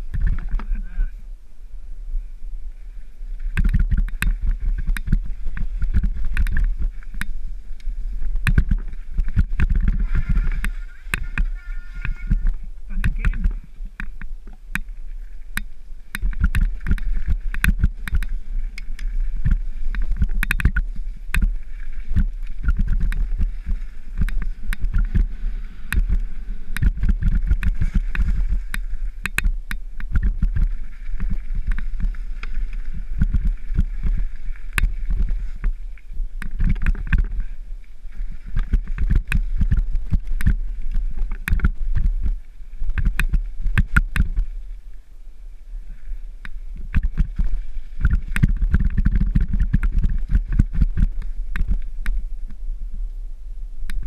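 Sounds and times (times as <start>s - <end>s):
wind rumble on microphone: 0.0s - 54.0s
mountain bike rattling: 3.6s - 14.2s, 15.5s - 35.8s.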